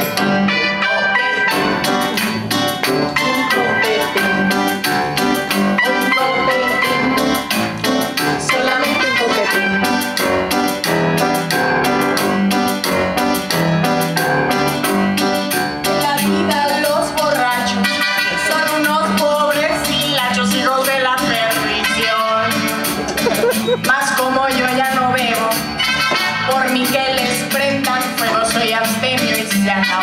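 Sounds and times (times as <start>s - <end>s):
grand piano playing: 0.0s - 17.8s, 20.3s - 27.1s
woman singing: 16.0s - 17.8s, 18.4s - 22.6s, 23.2s - 25.6s, 26.5s - 30.0s.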